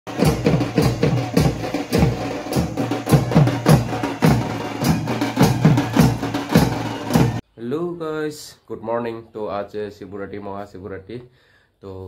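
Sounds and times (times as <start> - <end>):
barrel drums beating: 0.1 - 7.4.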